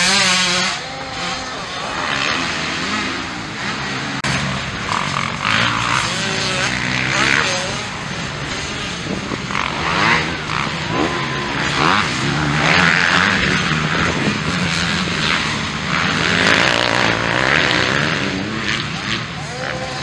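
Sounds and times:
dirt bike engines revving: 0:00.0 - 0:20.0.

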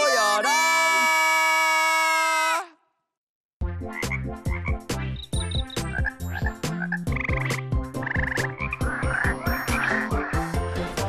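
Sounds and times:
frogs croaking: 0:04.0 - 0:10.6.

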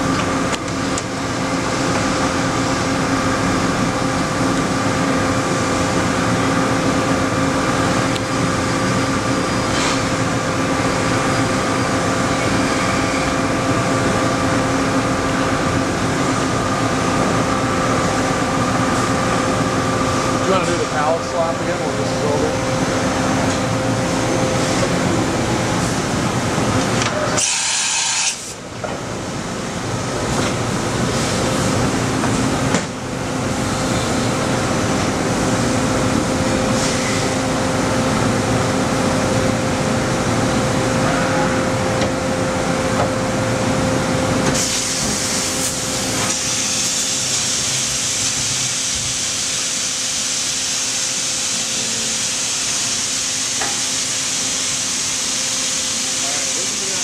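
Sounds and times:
pallet changer mechanical hum: 0:00.0 - 0:57.0
air hissing: 0:27.4 - 0:28.6.

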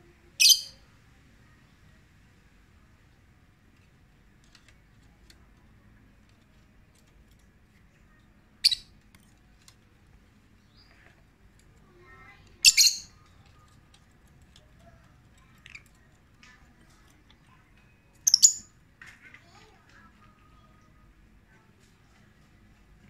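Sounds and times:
faint bird chirps: 0:00.4 - 0:00.8, 0:12.6 - 0:13.7
lovebirds calling: 0:12.6 - 0:13.1, 0:18.3 - 0:18.7.

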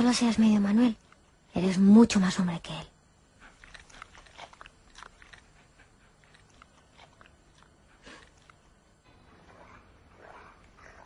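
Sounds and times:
puppy chewing: 0:03.3 - 0:11.0.

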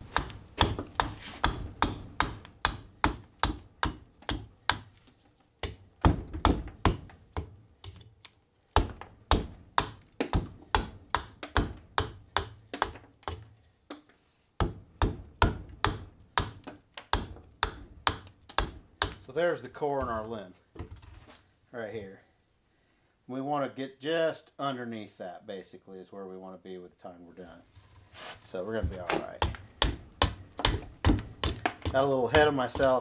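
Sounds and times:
hatchet chopping wood: 0:00.0 - 0:19.3, 0:28.8 - 0:33.0.

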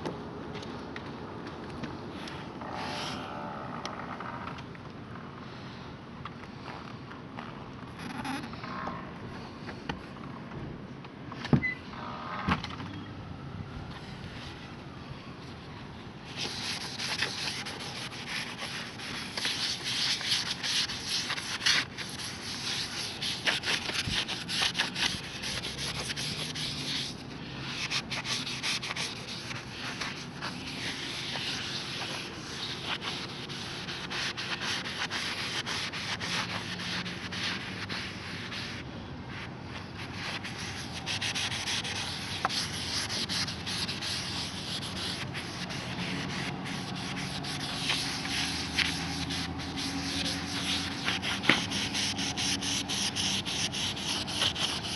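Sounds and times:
sponge scrubbing metal plate: 0:40.4 - 0:54.9.

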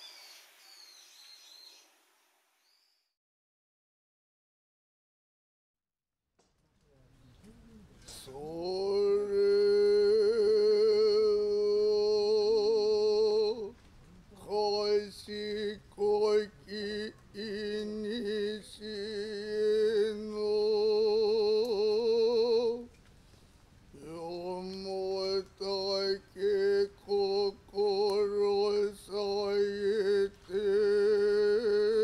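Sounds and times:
man chanting: 0:07.4 - 0:22.9, 0:24.0 - 0:32.0.

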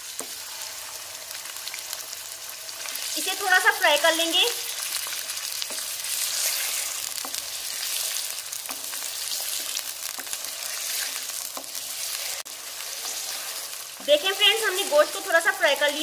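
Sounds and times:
meat sizzling in hot oil: 0:00.0 - 0:16.0
spatula tapping and scraping pan: 0:07.2 - 0:07.8, 0:08.6 - 0:11.9.

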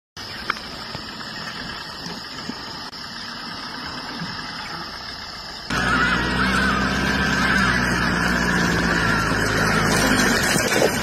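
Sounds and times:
vehicle engine idling: 0:00.2 - 0:11.0.

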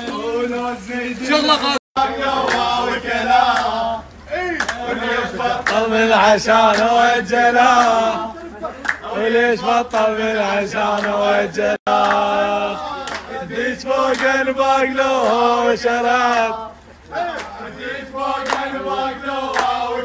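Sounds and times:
men chanting together: 0:00.0 - 0:20.0
hand claps: 0:02.4 - 0:02.8, 0:03.4 - 0:03.8, 0:04.6 - 0:04.9, 0:05.6 - 0:05.9, 0:06.6 - 0:07.0, 0:07.7 - 0:08.0, 0:08.8 - 0:09.1, 0:09.9 - 0:10.2, 0:10.9 - 0:11.3, 0:11.9 - 0:12.4, 0:13.0 - 0:14.5, 0:15.2 - 0:15.5, 0:16.2 - 0:16.6, 0:17.3 - 0:17.6, 0:18.4 - 0:19.8.

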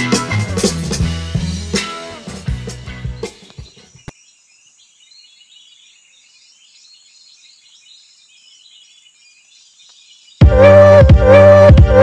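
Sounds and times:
birds chirping: 0:01.3 - 0:12.0
insects chirping: 0:03.2 - 0:10.4.

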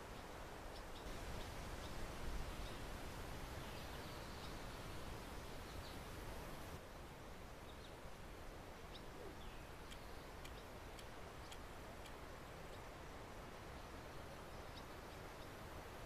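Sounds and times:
small birds chirping: 0:00.0 - 0:07.0, 0:08.9 - 0:12.9, 0:13.7 - 0:15.7.

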